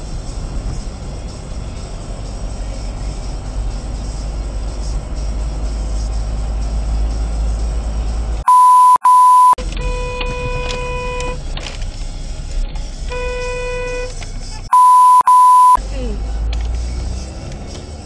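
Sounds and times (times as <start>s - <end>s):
car interior road rumble: 0.0s - 8.4s, 9.3s - 18.0s
car horn: 8.4s - 11.4s, 13.1s - 15.8s
censor bleeps: 8.4s - 11.4s, 14.7s - 15.8s.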